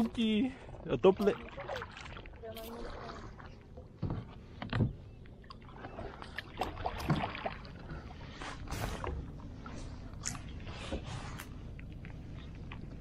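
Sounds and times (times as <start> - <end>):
water splashes: 0.0 - 4.7, 5.3 - 13.0.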